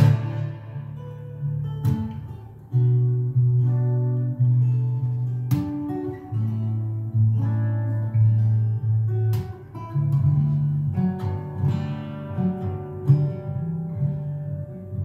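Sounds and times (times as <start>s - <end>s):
percussive knocks on guitar: 0.0s - 0.6s
fingerstyle acoustic guitar: 0.0s - 15.0s.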